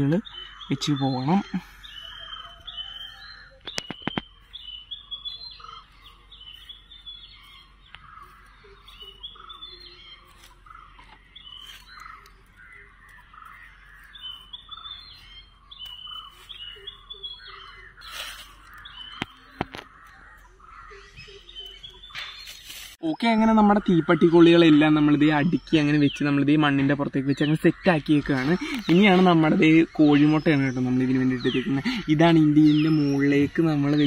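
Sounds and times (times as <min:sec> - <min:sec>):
birds chirping: 0:00.0 - 0:34.0
matchsticks clicking on sand: 0:18.0 - 0:20.2, 0:22.3 - 0:23.0.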